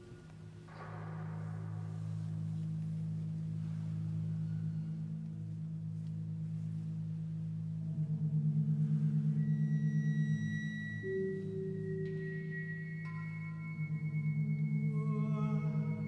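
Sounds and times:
low pulsing drone: 0:00.0 - 0:16.0
middle drone tone: 0:00.0 - 0:16.0.

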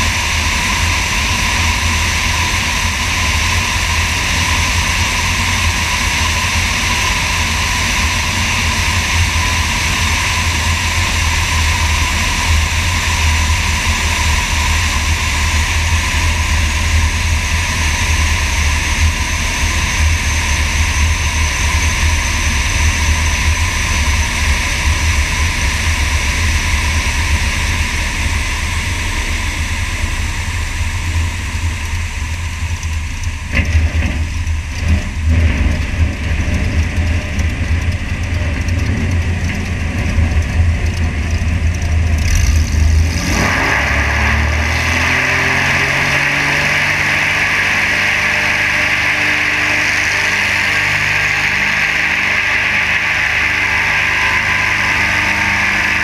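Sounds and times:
aircraft engine droning: 0:00.0 - 0:56.0
wheels knocking on runway: 0:32.8 - 0:42.2.

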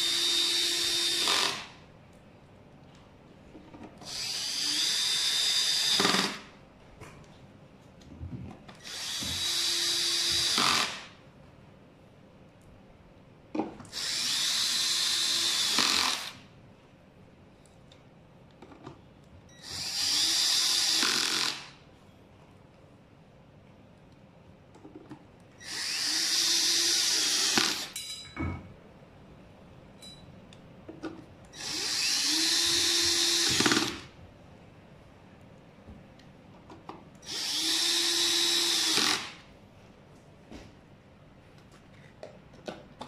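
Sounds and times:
cordless drill driving screws: 0:00.0 - 0:01.7, 0:04.0 - 0:06.4, 0:08.8 - 0:11.0, 0:13.9 - 0:16.4, 0:19.6 - 0:21.7, 0:25.6 - 0:27.9, 0:31.6 - 0:34.1, 0:37.2 - 0:39.4.

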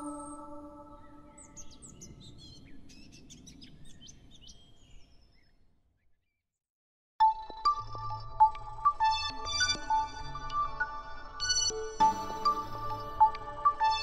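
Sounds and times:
music: 0:00.0 - 0:01.6, 0:07.2 - 0:14.0.

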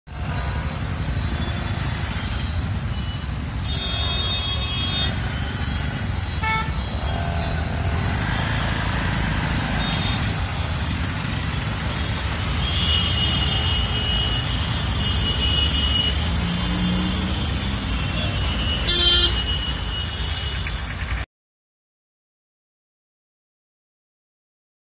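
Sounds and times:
traffic engines rumbling: 0:00.1 - 0:21.3
vehicle horns honking: 0:01.2 - 0:08.7, 0:09.6 - 0:10.7, 0:12.5 - 0:21.0.

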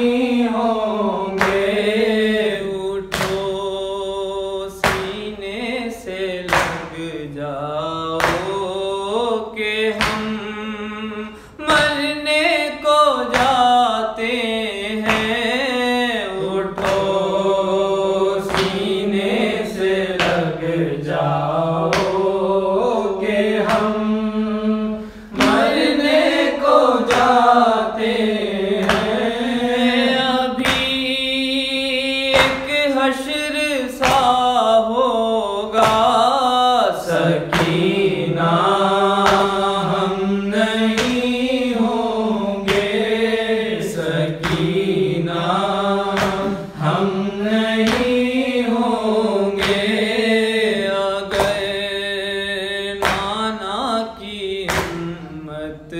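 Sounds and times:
man chanting: 0:00.0 - 0:55.9
rhythmic thumps: 0:14.9 - 0:24.6, 0:25.3 - 0:34.6, 0:35.8 - 0:51.9.

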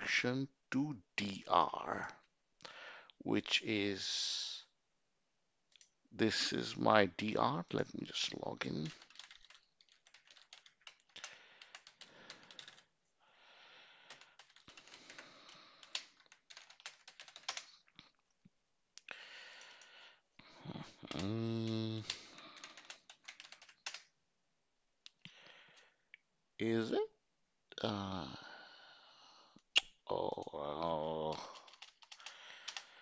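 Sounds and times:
computer keyboard typing: 0:08.8 - 0:12.9, 0:14.1 - 0:17.8, 0:21.1 - 0:24.1, 0:31.2 - 0:32.9
person humming: 0:20.6 - 0:22.2.

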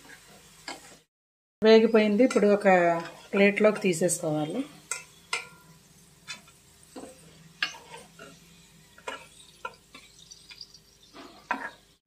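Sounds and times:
steel spoon scraping and clinking: 0:04.9 - 0:11.9.

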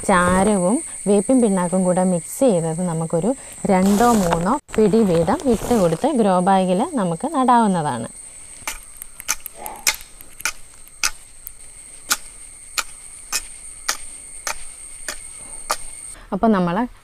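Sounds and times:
hoe scraping through stony soil: 0:03.8 - 0:06.4.

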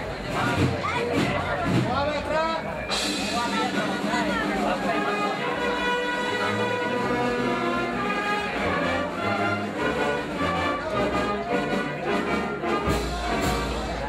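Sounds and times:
brass band playing a march: 0:02.6 - 0:14.0.

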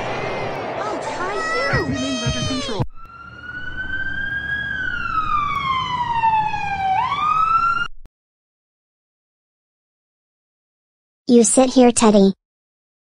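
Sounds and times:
ambulance siren wailing: 0:00.3 - 0:08.1
child crying wail: 0:01.2 - 0:02.8.

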